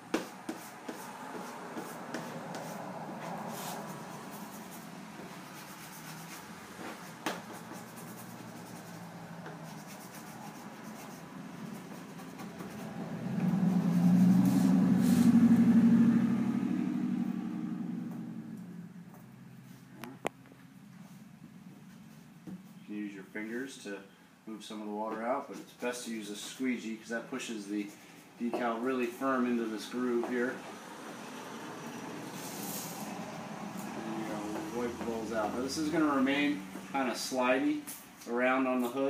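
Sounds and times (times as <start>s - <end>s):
squeegee scraping wet decal: 0.1s - 15.3s
low hum: 12.1s - 22.1s.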